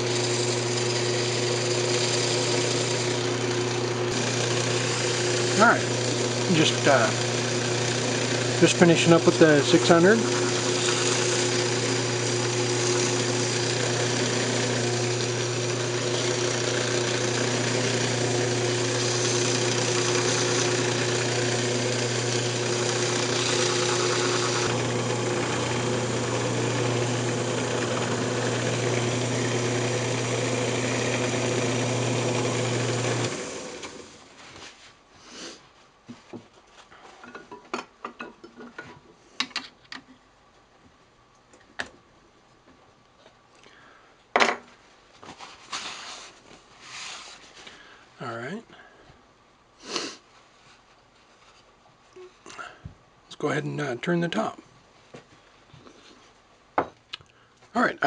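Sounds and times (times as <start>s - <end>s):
wood lathe running: 0.0s - 34.2s
sanding spinning wood: 0.0s - 34.3s.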